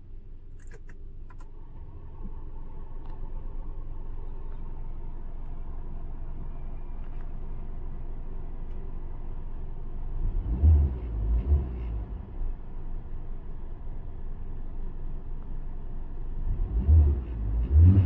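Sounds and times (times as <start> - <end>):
car engine idling: 0.0 - 17.9
car engine revving: 10.0 - 12.6, 16.4 - 18.0.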